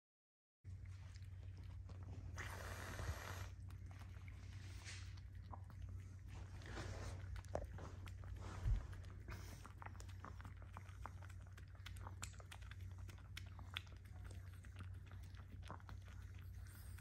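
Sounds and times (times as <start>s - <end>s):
dog licking and lapping: 0.7s - 17.0s.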